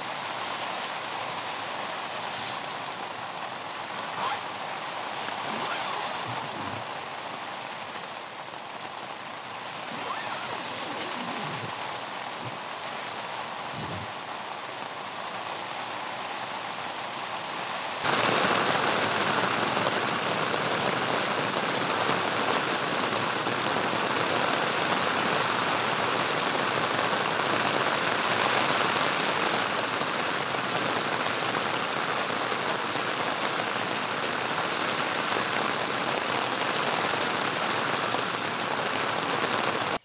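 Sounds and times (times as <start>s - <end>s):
steady rain: 0.0s - 40.0s.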